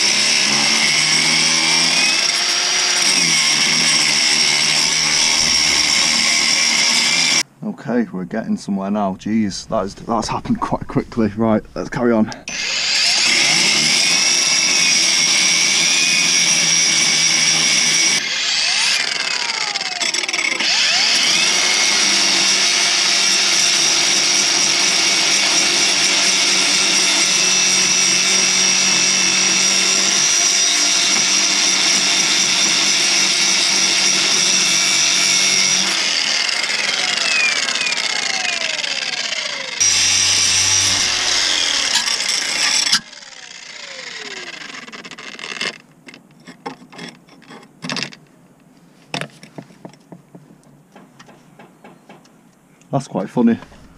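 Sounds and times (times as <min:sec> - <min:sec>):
angle grinder grinding steel: 0:00.0 - 0:07.4, 0:12.4 - 0:45.8.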